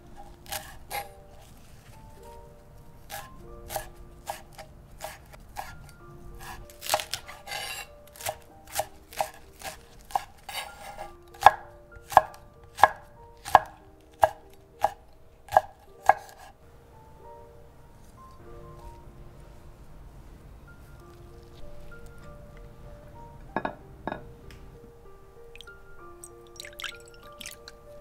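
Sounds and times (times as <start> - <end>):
knife chopping on wooden board: 3.1 - 5.7, 6.4 - 16.5.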